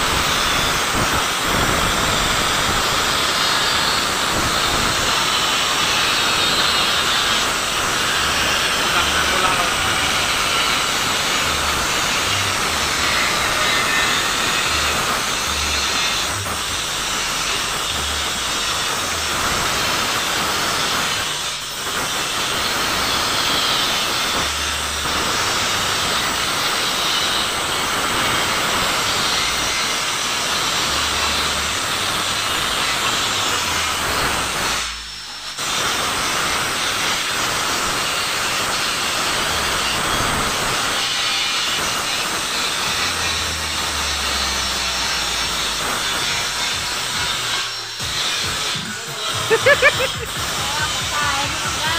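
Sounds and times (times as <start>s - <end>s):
compressed air hissing: 0.0s - 29.3s.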